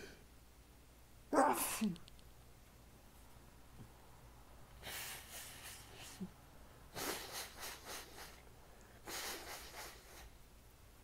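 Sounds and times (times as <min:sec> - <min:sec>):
heavy congested nasal breaths: 0:04.8 - 0:06.3, 0:06.9 - 0:10.4.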